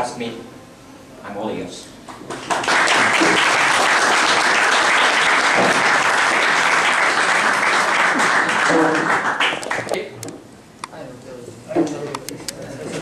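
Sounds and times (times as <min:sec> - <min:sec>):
audience applauding: 0:02.3 - 0:09.9.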